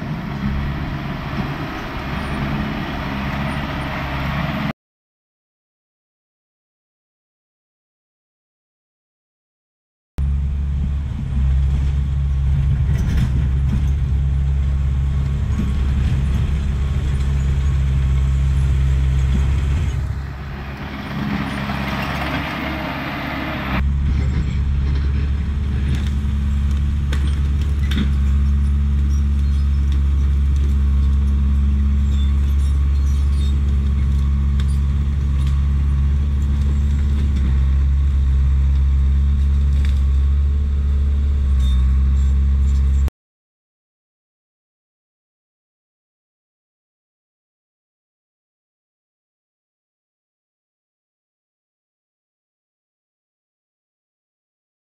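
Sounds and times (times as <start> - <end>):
bulldozer diesel engine under load: 0.0 - 4.7, 10.2 - 43.1.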